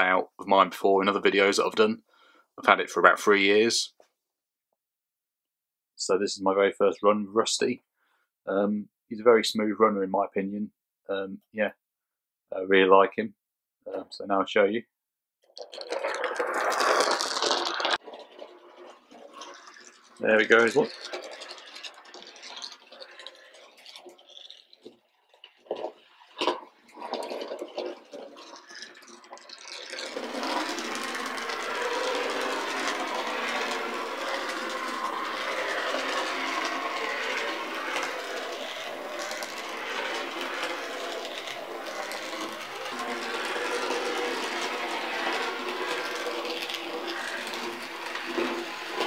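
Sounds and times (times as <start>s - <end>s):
model train whirring rattle: 15.6s - 49.0s.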